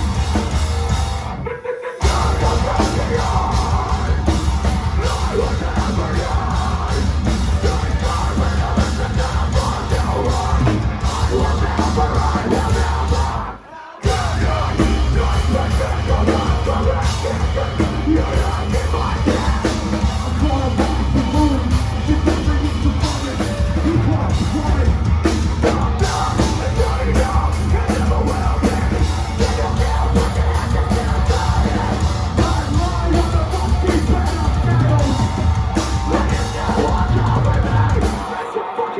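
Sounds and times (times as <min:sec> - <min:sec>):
bass guitar: 0:00.0 - 0:38.4
distorted electric guitars: 0:00.0 - 0:38.9
drums: 0:00.0 - 0:38.9
screamed vocals: 0:01.3 - 0:04.2, 0:36.1 - 0:38.9.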